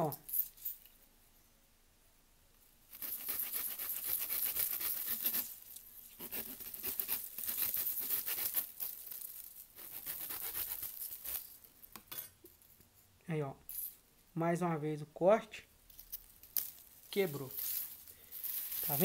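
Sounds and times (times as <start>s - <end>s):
saw rasping through bamboo: 2.9s - 5.5s, 6.2s - 8.7s, 9.8s - 11.4s.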